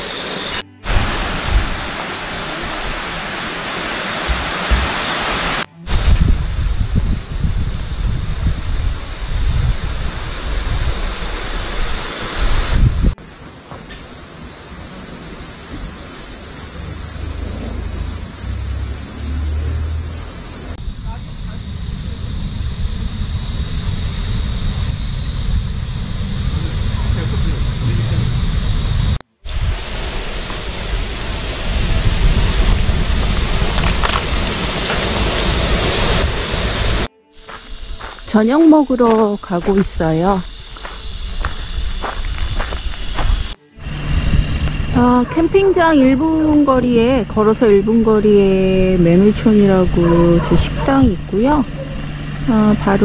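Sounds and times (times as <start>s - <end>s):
steady rushing noise with hiss: 0.0s - 45.0s
wind buffeting microphone: 5.8s - 13.2s, 15.5s - 37.1s, 37.8s - 53.0s.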